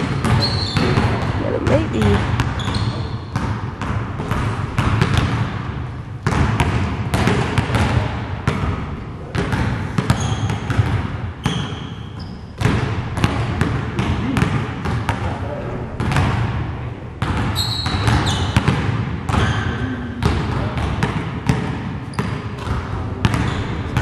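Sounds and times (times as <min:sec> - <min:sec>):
sneaker squeaks: 0:00.0 - 0:03.5, 0:09.4 - 0:12.8, 0:17.4 - 0:20.0, 0:22.0 - 0:24.0
basketballs bouncing on gym floor: 0:00.0 - 0:24.0.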